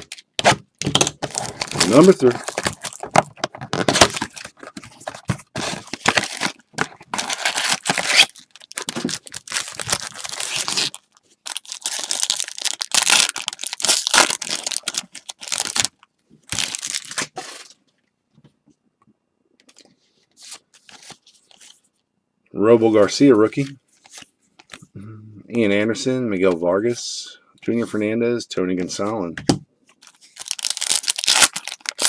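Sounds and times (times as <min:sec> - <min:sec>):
wrapper ripping and crinkling: 0:00.0 - 0:17.8, 0:30.0 - 0:32.0
cardboard box tearing: 0:01.2 - 0:11.0
faint handling of cards: 0:19.6 - 0:22.0, 0:23.5 - 0:24.9.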